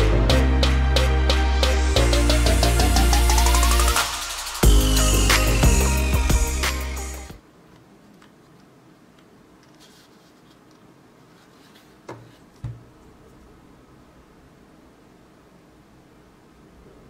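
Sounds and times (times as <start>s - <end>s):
light knocks: 12.1s - 13.0s.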